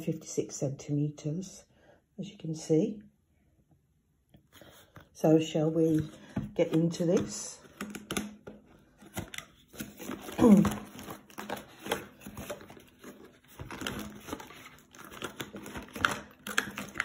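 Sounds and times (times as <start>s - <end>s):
packaging crinkling and rustling: 5.8s - 17.0s.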